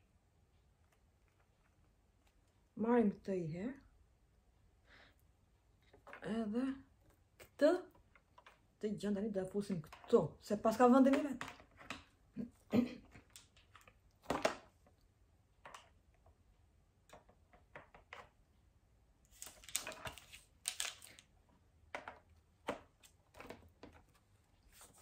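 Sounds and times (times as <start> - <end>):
plastic clicks and knocks: 17.0 - 18.4.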